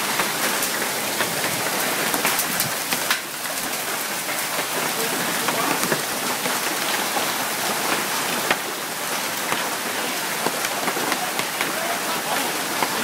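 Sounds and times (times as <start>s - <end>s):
hailstones ticking: 0.0s - 13.0s
heavy rain hissing: 0.0s - 13.0s.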